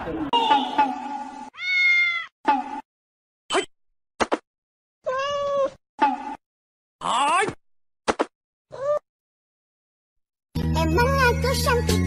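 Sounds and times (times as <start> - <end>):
cat meowing: 1.6 - 2.3, 5.0 - 5.8, 8.7 - 9.0.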